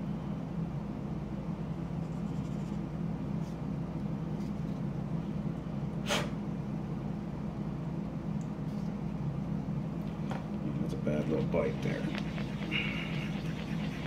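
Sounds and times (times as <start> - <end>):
steady low hum: 0.0 - 14.0
short sharp hiss: 6.0 - 6.4.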